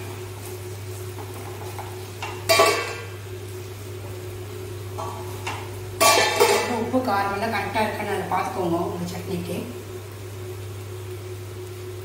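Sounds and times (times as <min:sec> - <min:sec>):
steady low hum: 0:00.0 - 0:12.0
metal lid clanking: 0:02.2 - 0:03.1, 0:05.0 - 0:06.8.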